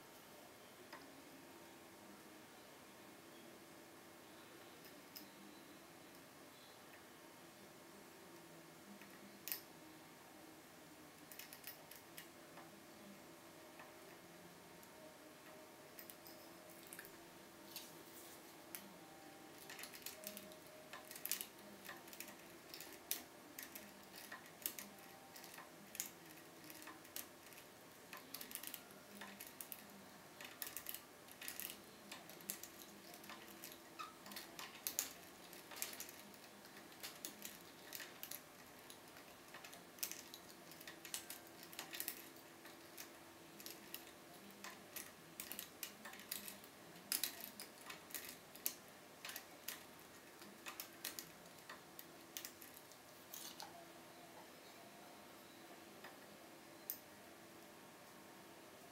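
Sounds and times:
lock pick clicking and scratching: 0:11.3 - 0:12.3, 0:19.5 - 0:53.6.

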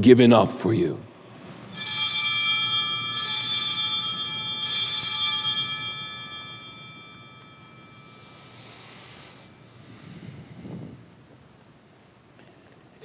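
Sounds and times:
altar bells ringing: 0:01.3 - 0:10.0.

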